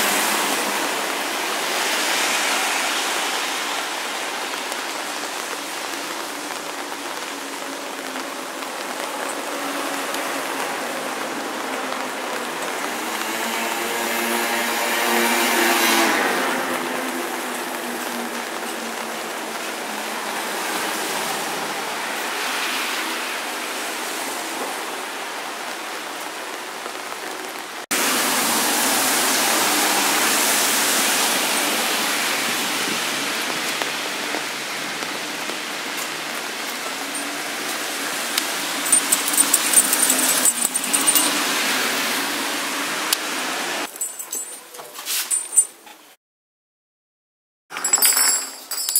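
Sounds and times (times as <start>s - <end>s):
steady rain falling: 0.0s - 44.2s
light metallic jingling: 38.8s - 41.4s, 43.9s - 45.8s, 47.8s - 48.9s.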